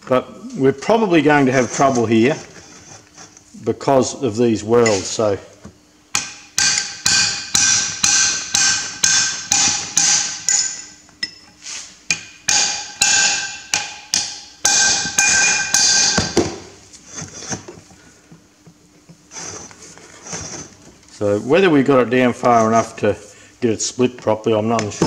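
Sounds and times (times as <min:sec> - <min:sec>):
hammer striking metal chisel: 0:06.1 - 0:11.4, 0:12.1 - 0:16.5.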